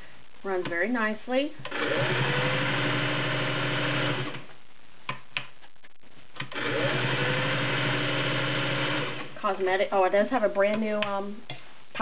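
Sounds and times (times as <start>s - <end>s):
sewing machine running: 1.6s - 4.4s, 6.5s - 9.4s.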